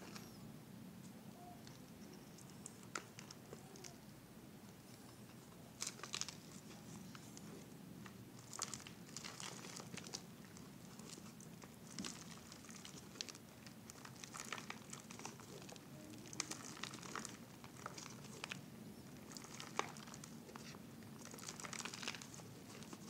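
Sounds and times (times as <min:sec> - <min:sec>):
low steady hum: 0:00.0 - 0:23.0
potting soil worked by hand: 0:04.8 - 0:23.0
plastic bottle crinkling: 0:05.8 - 0:07.5, 0:08.4 - 0:23.0.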